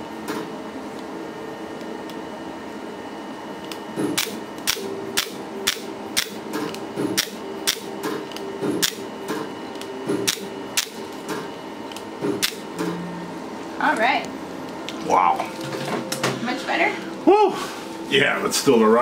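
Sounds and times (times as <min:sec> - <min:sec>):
faint machine hum: 0:00.0 - 0:19.0
laser handpiece click-pop: 0:03.6 - 0:09.1, 0:09.7 - 0:11.0.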